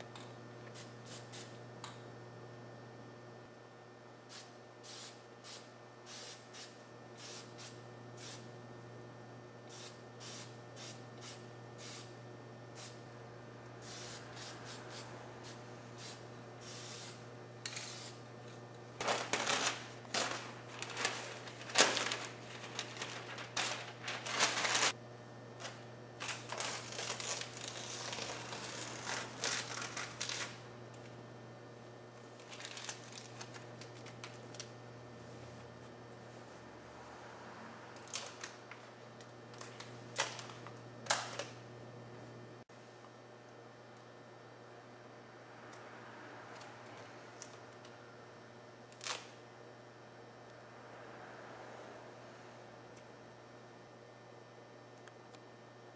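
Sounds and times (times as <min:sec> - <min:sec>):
steady low hum: 0:00.0 - 0:55.9
paper and tape crinkling: 0:19.0 - 0:25.0, 0:25.6 - 0:30.6, 0:32.4 - 0:34.7, 0:49.0 - 0:49.3.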